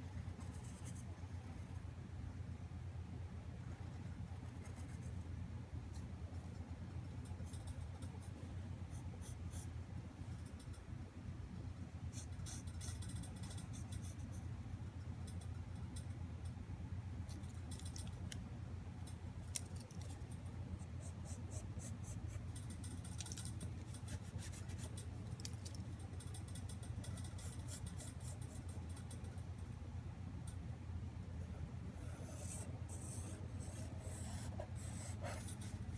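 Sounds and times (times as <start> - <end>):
pen scratching on paper: 32.0 - 35.8.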